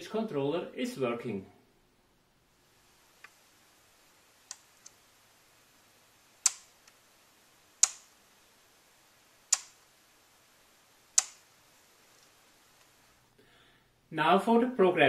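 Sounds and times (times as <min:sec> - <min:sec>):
faint clicks: 0:03.2 - 0:03.4, 0:04.4 - 0:05.0, 0:06.4 - 0:07.0, 0:07.8 - 0:08.2, 0:09.5 - 0:09.9, 0:11.1 - 0:11.5.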